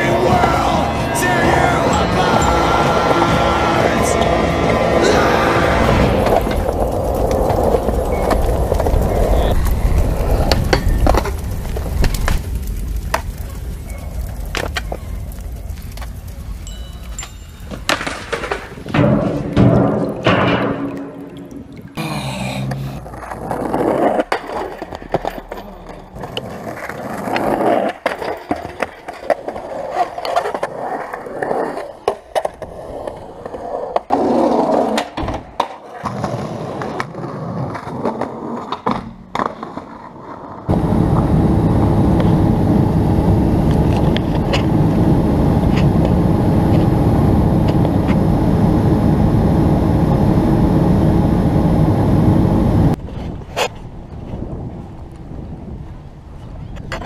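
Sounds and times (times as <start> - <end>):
jet airliner cabin roar: 0.0 - 7.4, 40.7 - 53.0
skateboard clacks: 0.0 - 15.0, 17.1 - 21.2, 23.0 - 40.8
skateboard wheels rolling on pavement: 0.0 - 20.9, 23.0 - 57.0.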